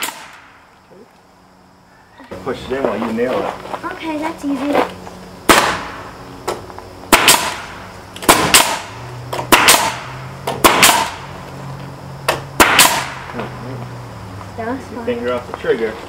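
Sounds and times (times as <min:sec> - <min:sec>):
nail gun shots: 0:00.0 - 0:00.5, 0:05.5 - 0:06.0, 0:07.1 - 0:11.2, 0:12.3 - 0:13.2.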